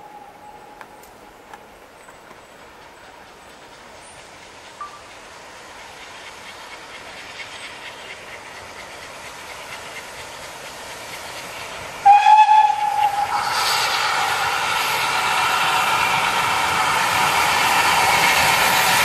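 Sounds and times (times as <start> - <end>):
steam hissing: 0.0 - 19.0
steam locomotive approaching: 0.0 - 19.0
loud train whistle: 12.0 - 16.5.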